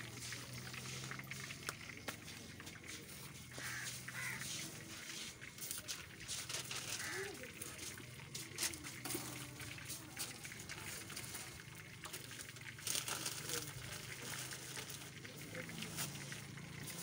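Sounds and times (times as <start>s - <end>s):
faint voices: 0.0s - 17.0s
plastic bag and paper rustling: 5.0s - 17.0s.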